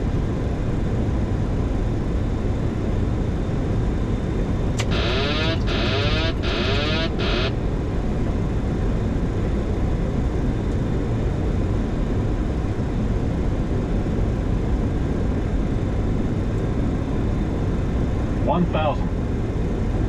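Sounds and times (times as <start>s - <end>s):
cockpit airflow and engine noise: 0.0s - 20.0s
warning tone: 4.8s - 7.6s.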